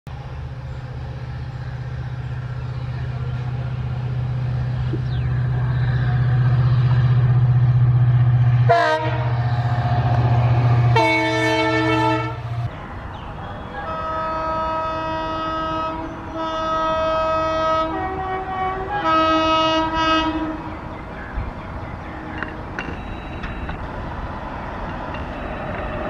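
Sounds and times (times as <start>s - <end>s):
diesel locomotive engine droning: 0.1s - 26.0s
locomotive horn: 8.6s - 9.5s, 10.7s - 12.7s, 13.6s - 20.7s.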